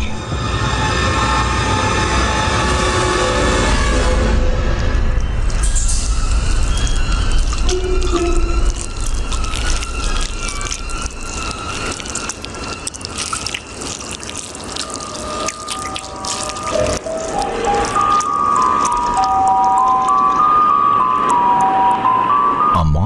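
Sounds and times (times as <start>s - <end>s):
soft background music: 0.0s - 22.8s
small wet clicks and crunches: 6.8s - 20.4s.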